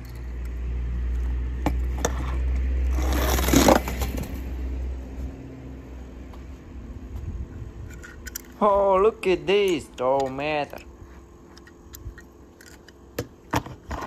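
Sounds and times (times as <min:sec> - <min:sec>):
toy car scraping: 0:01.9 - 0:04.4.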